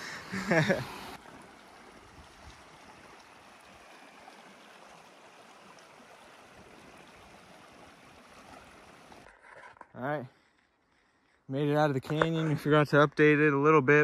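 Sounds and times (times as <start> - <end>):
water rushing over stones: 0.0 - 9.3.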